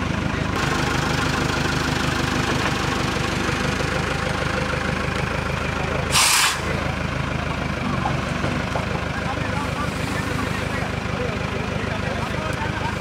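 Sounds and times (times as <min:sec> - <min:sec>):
diesel engine idling: 0:00.0 - 0:13.0
air release hiss: 0:06.1 - 0:06.7.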